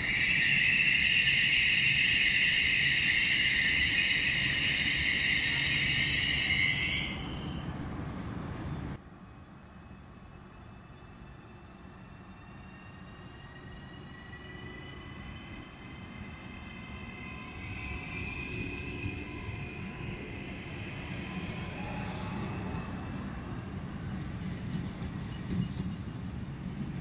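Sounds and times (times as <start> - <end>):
train wheels rumbling on rails: 0.0 - 9.2, 10.0 - 27.0
electric train motor whine: 10.9 - 24.8.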